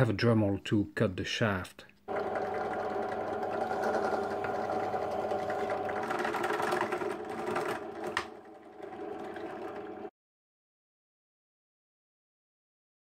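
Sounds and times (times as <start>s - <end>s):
drill press drilling plastic: 2.1s - 10.1s.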